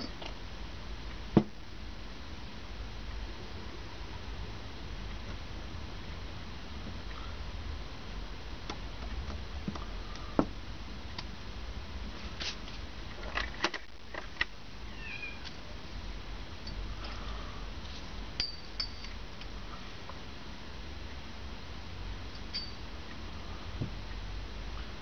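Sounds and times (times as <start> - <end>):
steady low hum: 0.0 - 15.0, 15.6 - 25.0
steel parts and tools clinking: 18.4 - 19.5, 22.4 - 22.8.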